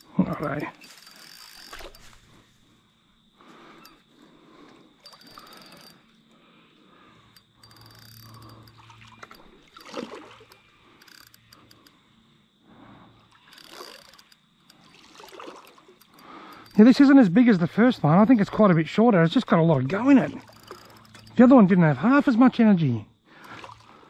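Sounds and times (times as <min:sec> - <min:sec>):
fishing reel clicks: 0:00.0 - 0:02.2, 0:03.7 - 0:04.0, 0:05.0 - 0:06.3, 0:07.2 - 0:12.0, 0:13.2 - 0:18.6, 0:19.2 - 0:22.4
fish splashing at water surface: 0:08.8 - 0:10.6, 0:14.7 - 0:16.6, 0:23.4 - 0:24.0.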